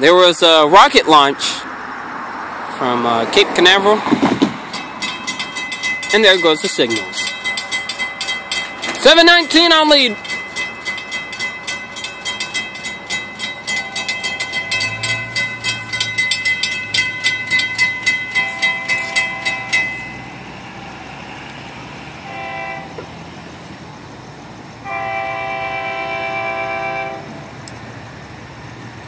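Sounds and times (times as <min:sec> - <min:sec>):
crossing warning bell ringing: 0:02.8 - 0:23.3, 0:24.8 - 0:27.5
locomotive air horn blasts: 0:22.2 - 0:23.1, 0:24.8 - 0:27.5.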